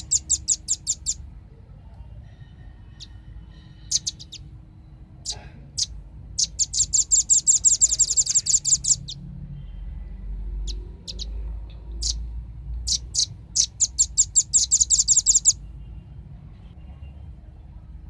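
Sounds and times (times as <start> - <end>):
bird calling in rapid trills: 0.0 - 1.2, 3.8 - 4.5, 5.2 - 9.2, 10.6 - 11.4, 12.0 - 12.2, 12.9 - 15.6.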